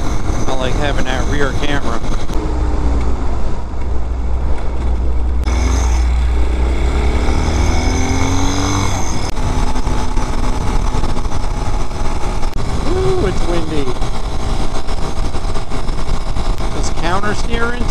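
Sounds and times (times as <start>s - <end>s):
motorcycle engine running: 0.0s - 17.9s
wind rush over microphone: 0.0s - 17.9s.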